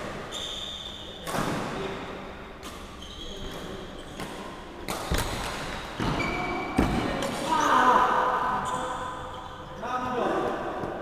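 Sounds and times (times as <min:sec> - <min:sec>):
racket striking shuttlecock: 0:02.5 - 0:06.1
shoes squeaking on wooden floor: 0:02.9 - 0:04.3, 0:06.0 - 0:06.8.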